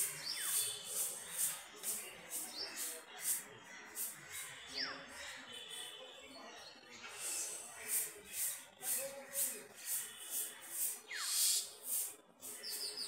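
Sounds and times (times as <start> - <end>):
bird calling: 11.1 - 11.8.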